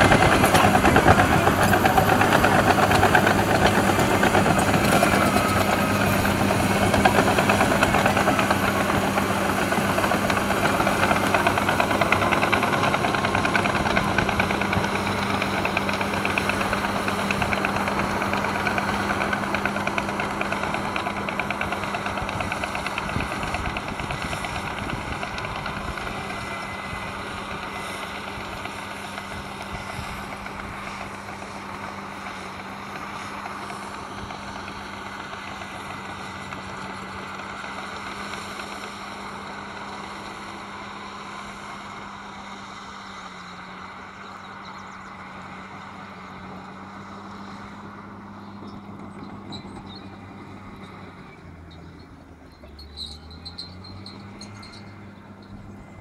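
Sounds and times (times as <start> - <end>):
steel tracks clanking: 0.0 - 26.4
bulldozer diesel engine running: 0.0 - 56.0.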